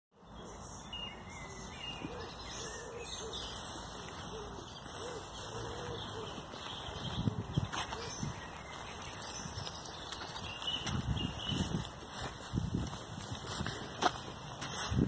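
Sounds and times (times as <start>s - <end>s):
birds chirping and singing: 0.2s - 15.0s
steady outdoor hiss: 0.2s - 15.0s.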